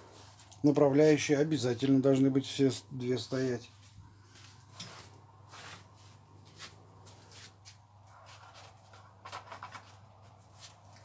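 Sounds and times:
cloth rustling and scuffing: 0:03.3 - 0:08.9, 0:09.9 - 0:11.0
short scrapes: 0:04.3 - 0:08.8.

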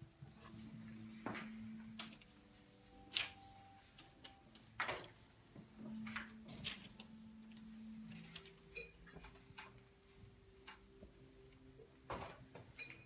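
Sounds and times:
paintbrush swishing on board: 0:00.3 - 0:04.0.

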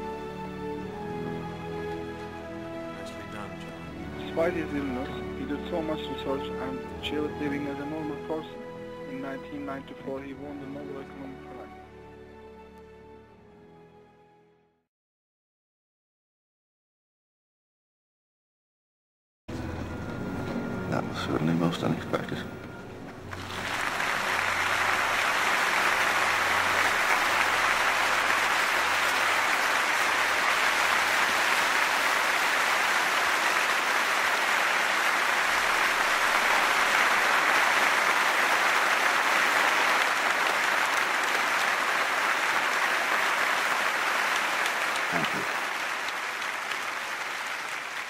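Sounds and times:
audience applauding: 0:23.2 - 0:48.0.

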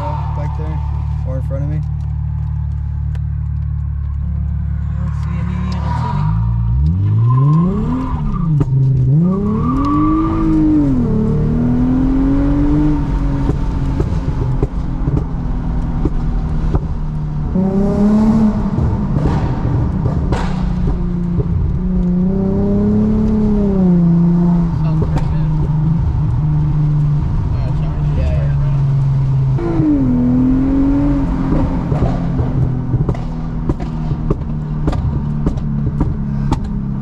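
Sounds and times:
car engine revving: 0:00.0 - 0:37.0.

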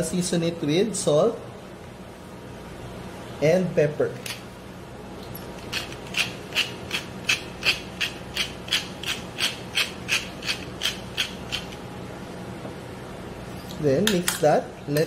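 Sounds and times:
pepper mill grinding: 0:05.6 - 0:11.8.

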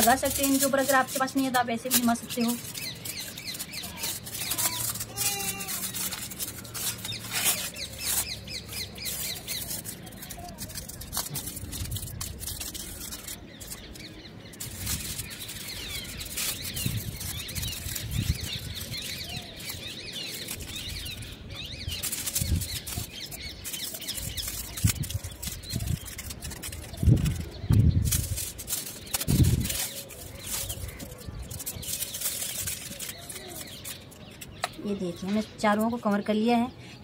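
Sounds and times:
aluminium foil crinkling: 0:00.0 - 0:36.2
birds chirping: 0:00.0 - 0:37.0.

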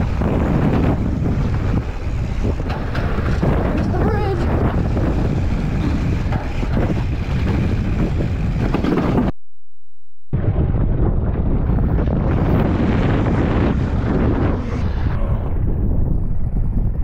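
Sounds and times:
bike knocks and rattles: 0:00.0 - 0:09.3
bike tyres rumbling on dirt: 0:00.0 - 0:09.3, 0:10.4 - 0:17.0
wind buffeting microphone: 0:00.0 - 0:09.3, 0:10.4 - 0:17.0.

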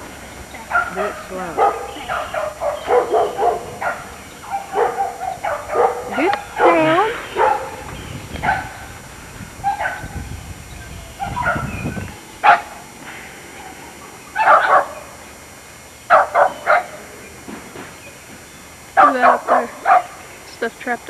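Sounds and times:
dog barking: 0:00.7 - 0:08.9, 0:09.6 - 0:10.2, 0:11.2 - 0:11.7, 0:12.4 - 0:12.8, 0:14.4 - 0:15.1, 0:16.1 - 0:17.0, 0:19.0 - 0:20.2.

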